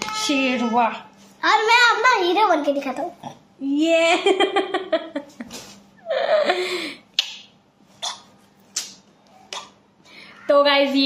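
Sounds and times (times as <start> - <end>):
woman and boy laughing: 4.1 - 7.0.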